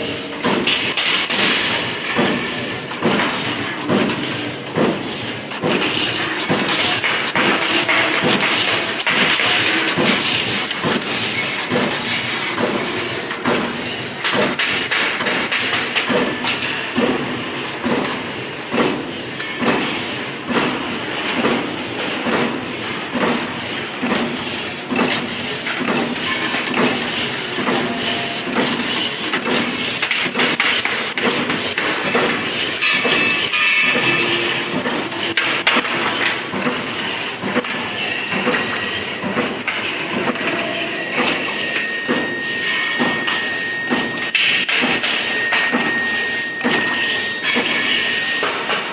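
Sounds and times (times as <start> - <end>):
continuous machine noise: 0.0 - 48.9
shear cutting with metallic clacks: 24.9 - 48.5.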